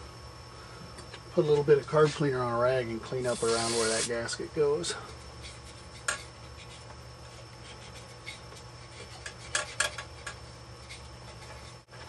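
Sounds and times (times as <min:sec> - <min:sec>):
cloth rag rubbing on metal: 0:03.3 - 0:04.2.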